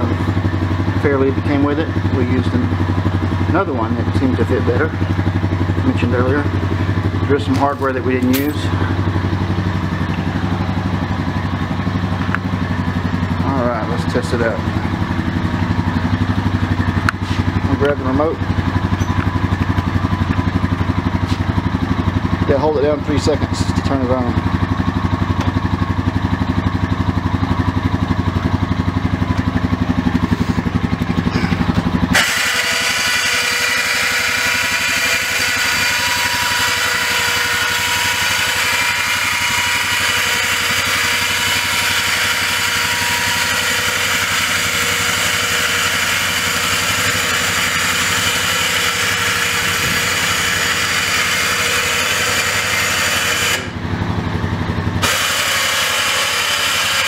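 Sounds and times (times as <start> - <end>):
engine idling: 0.0 - 57.0
electric winch whining: 31.3 - 53.9, 55.0 - 57.0.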